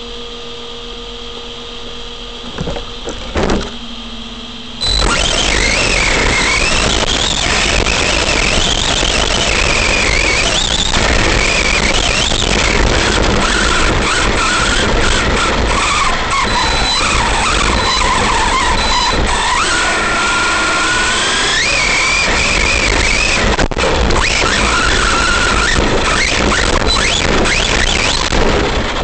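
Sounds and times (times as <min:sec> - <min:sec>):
electric motor whining: 0:00.0 - 0:29.0
wind: 0:00.0 - 0:29.0
tyres on dirt and gravel: 0:02.4 - 0:04.0.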